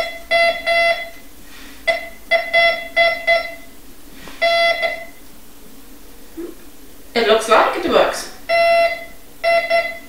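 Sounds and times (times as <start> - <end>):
metal detector beeping: 8.5 - 10.0.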